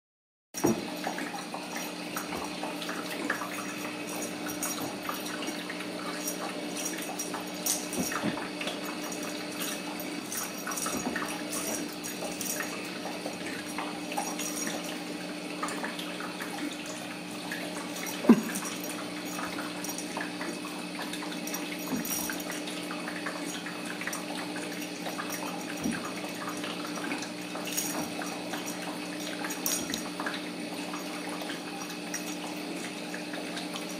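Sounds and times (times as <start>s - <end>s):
room hum and hiss: 0.6s - 33.9s
paws tapping and scuffling: 3.8s - 13.7s.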